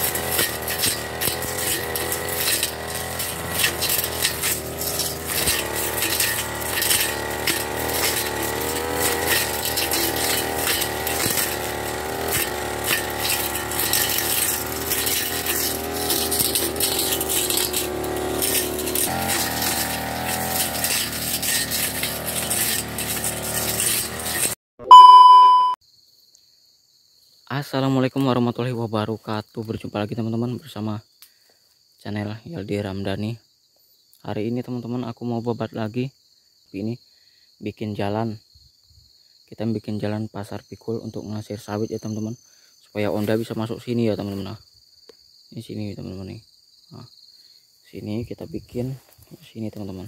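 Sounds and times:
brush cutter engine running: 0:00.0 - 0:24.6
cutting head rattling: 0:00.1 - 0:24.6.

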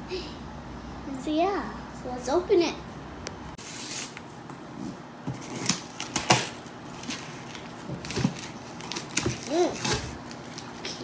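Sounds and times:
packing tape ripping off box: 0:03.6 - 0:04.2, 0:05.3 - 0:10.7.

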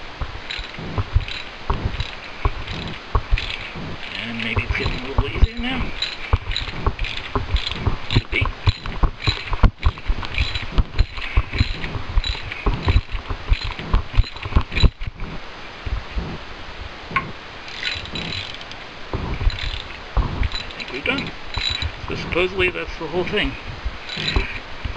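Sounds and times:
socket ratchet clicking: 0:04.8 - 0:14.8.

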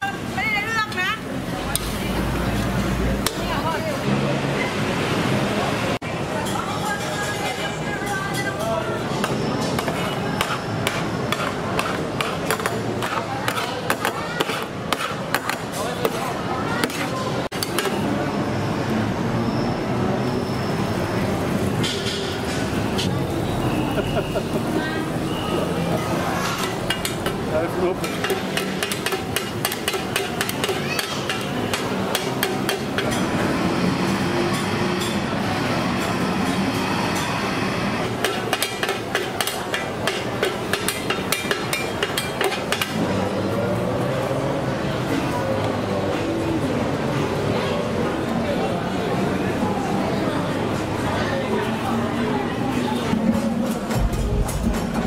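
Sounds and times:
steady background din: 0:00.0 - 0:55.0
metal spatulas clacking on pan: 0:09.2 - 0:16.2, 0:26.6 - 0:33.3, 0:38.2 - 0:43.0
low rumbling background noise: 0:15.8 - 0:55.0.

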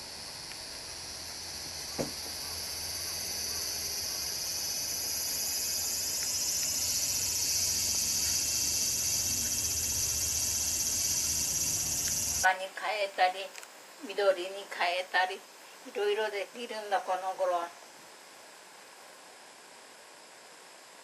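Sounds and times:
insects chirring: 0:00.0 - 0:12.6
short knock: 0:02.0 - 0:02.3.

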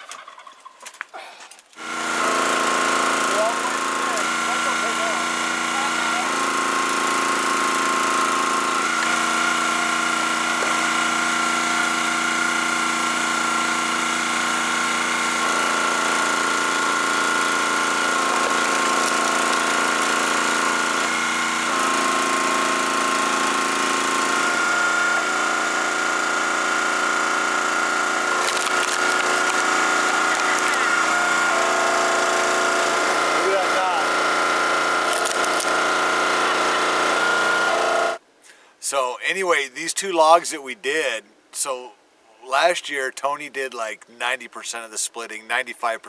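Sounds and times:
log splitter engine running: 0:01.7 - 0:38.2
wood splitting cracks: 0:18.2 - 0:21.1, 0:28.3 - 0:30.8, 0:35.1 - 0:35.8.

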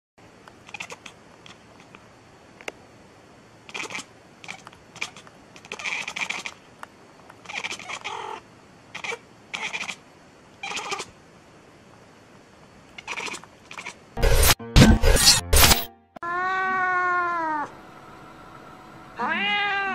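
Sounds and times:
cat meowing: 0:09.0 - 0:10.0, 0:10.6 - 0:11.1, 0:16.2 - 0:17.7, 0:19.2 - 0:19.9.

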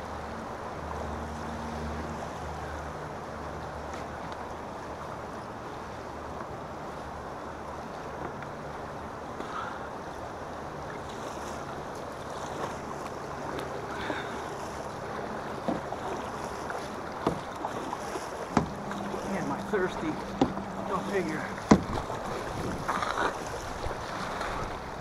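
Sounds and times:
river water splashing against hull: 0:00.0 - 0:25.0
sharp knocks: 0:17.2 - 0:17.4, 0:18.5 - 0:18.8, 0:20.4 - 0:20.6, 0:21.6 - 0:22.0
wind on microphone: 0:21.6 - 0:25.0.

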